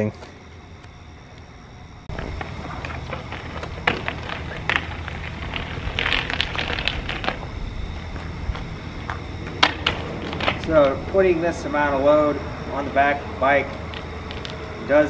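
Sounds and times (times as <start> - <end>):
steady low hum: 0.0 - 15.0
bicycle wheeled with clicks: 2.1 - 11.0, 13.6 - 14.6
footsteps on rough pavement: 2.1 - 15.0.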